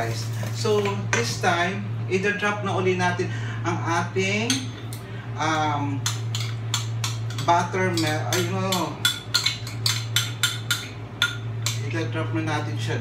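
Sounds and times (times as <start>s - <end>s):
spoon tapping a bowl: 6.0s - 11.8s.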